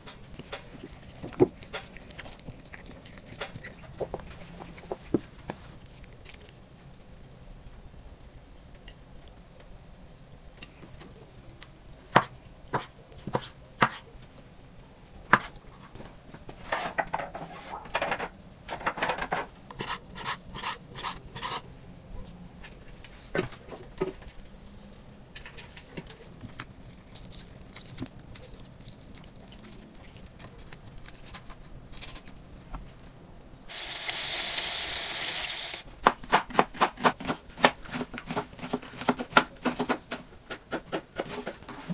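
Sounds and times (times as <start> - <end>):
food sizzling: 33.7 - 35.9.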